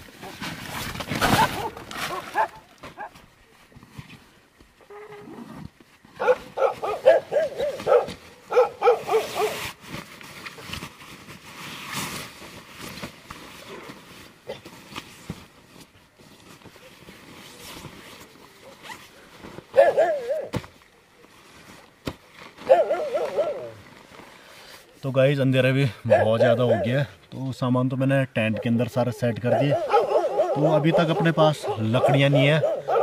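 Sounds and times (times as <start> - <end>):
sleeping bag rustling: 0.0 - 25.1
dogs barking: 1.4 - 3.2, 6.2 - 9.6, 19.7 - 20.5, 22.6 - 23.8, 26.1 - 27.1, 28.5 - 33.0.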